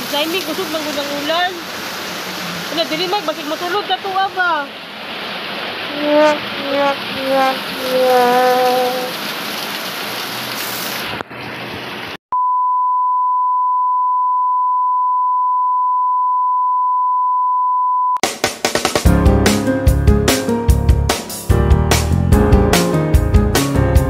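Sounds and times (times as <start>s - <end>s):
heavy rain pouring: 0.0s - 12.2s
music with a beat: 18.2s - 24.0s.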